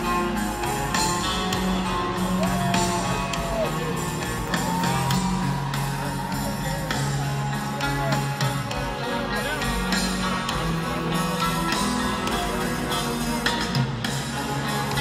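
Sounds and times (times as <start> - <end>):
heavy metal band playing: 0.0 - 15.0.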